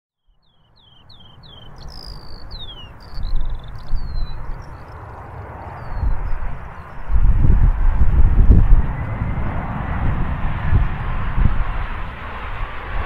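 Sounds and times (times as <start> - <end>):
small bird chirping: 0.2 - 7.1
wind buffeting microphone: 0.8 - 13.0.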